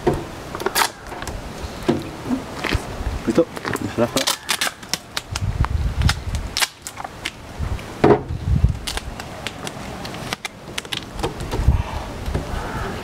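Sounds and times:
adhesive tape ripping: 0.6s - 1.4s, 4.2s - 7.4s, 8.8s - 11.1s.

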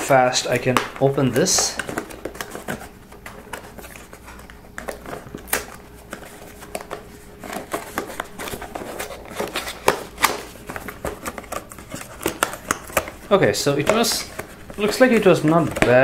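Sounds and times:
cardboard box scraping and rustling: 5.2s - 16.0s.

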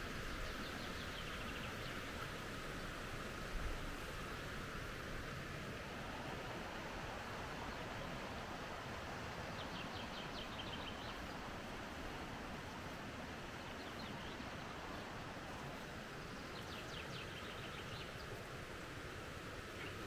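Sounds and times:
songbird singing: 0.0s - 2.3s, 9.4s - 11.5s, 13.5s - 15.0s, 16.1s - 18.4s, 19.7s - 20.0s.

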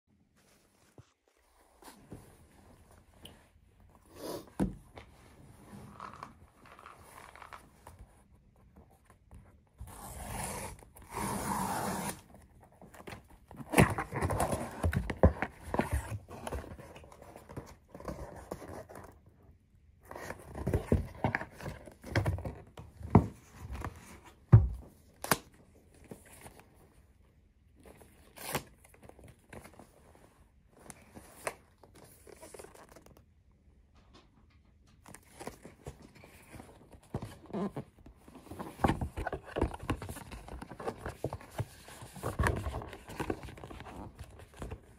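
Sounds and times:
cardboard rustling and scraping: 9.8s - 19.3s, 20.0s - 25.0s, 35.0s - 44.9s.

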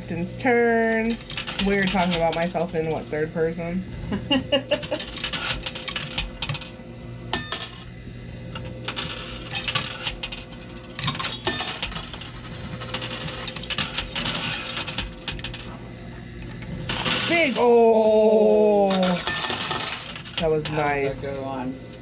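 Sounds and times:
coins clinking in machine: 0.6s - 3.3s, 4.7s - 7.9s, 8.6s - 15.8s, 16.5s - 17.9s, 18.6s - 21.4s.

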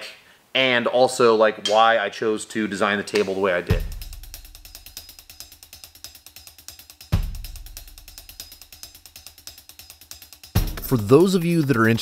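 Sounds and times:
deep heavy drum hit: 3.7s - 4.6s
fast hi-hat beat: 3.7s - 12.0s.

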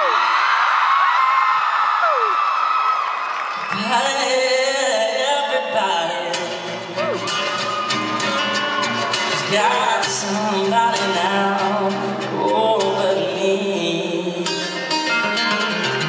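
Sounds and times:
acoustic guitar: 3.6s - 16.0s
man singing: 3.7s - 7.2s, 9.2s - 15.1s.

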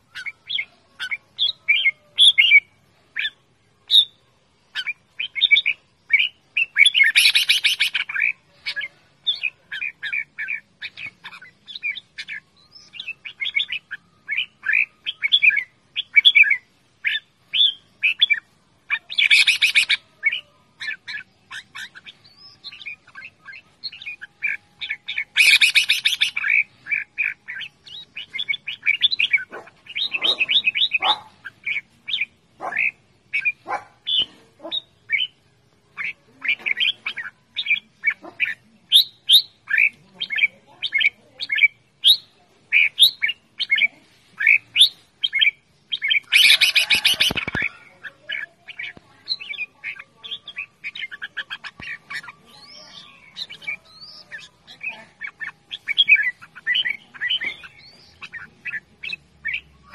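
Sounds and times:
bulbul chirpy whistled calls: 0.0s - 59.9s
harsh bird call bursts: 6.2s - 18.2s, 18.9s - 34.3s, 44.4s - 59.7s.

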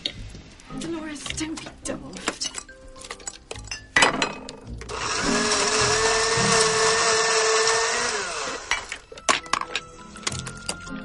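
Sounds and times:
small electric motor whirring: 4.9s - 9.0s.

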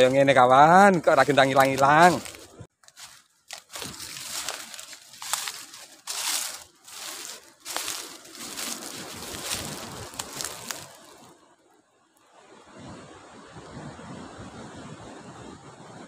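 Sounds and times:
dry leaves crunching underfoot: 0.0s - 11.4s.

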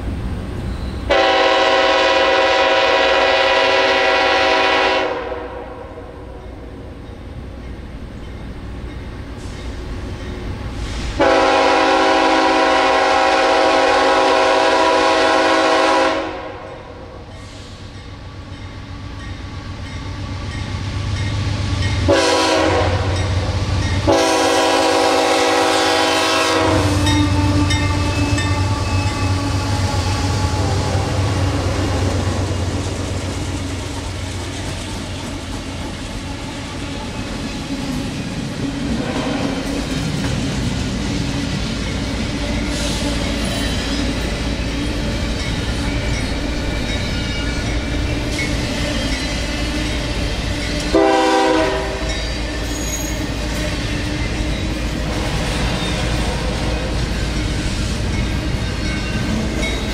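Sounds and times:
heavy locomotive engine rumble: 0.0s - 59.9s
locomotive horn blasts: 1.1s - 6.0s, 11.2s - 17.0s, 22.1s - 23.4s, 24.0s - 29.8s, 50.9s - 52.2s
train wheels clacking on rails: 17.2s - 59.9s.

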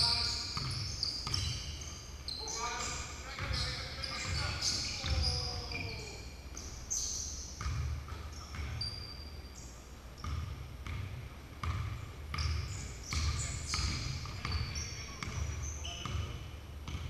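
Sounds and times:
basketball bouncing on wooden floor: 0.0s - 1.7s, 7.6s - 8.9s, 10.2s - 17.0s
sneakers squeaking: 0.0s - 17.0s.

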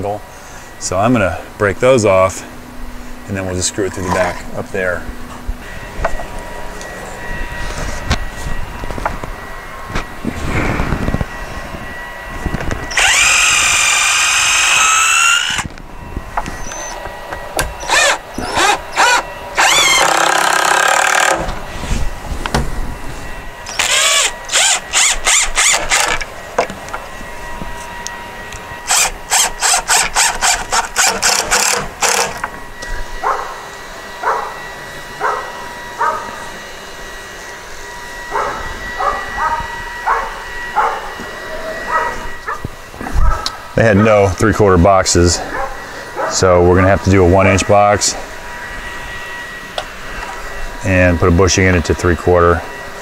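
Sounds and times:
cordless drill whining: 12.5s - 21.6s, 23.6s - 27.2s, 28.5s - 33.0s
dog barking: 33.2s - 33.6s, 34.2s - 34.6s, 35.2s - 36.3s, 38.3s - 41.1s, 41.9s - 42.6s, 43.2s - 43.6s, 45.5s - 46.4s.

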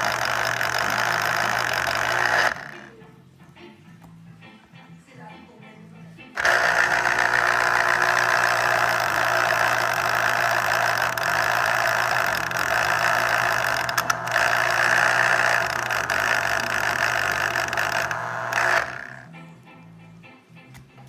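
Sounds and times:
electric juicer motor running: 0.0s - 2.9s, 6.4s - 19.3s.

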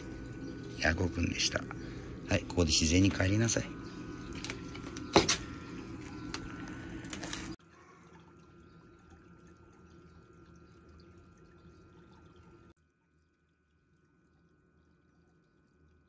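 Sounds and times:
water trickling and dripping: 0.0s - 2.2s, 7.5s - 16.0s.

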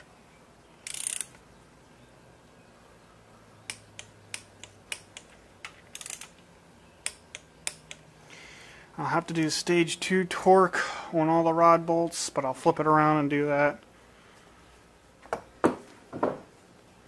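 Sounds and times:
torque wrench clicks: 0.8s - 1.4s, 3.7s - 6.4s, 7.0s - 8.0s
torque wrench ratcheting: 0.8s - 1.4s, 5.9s - 6.4s.

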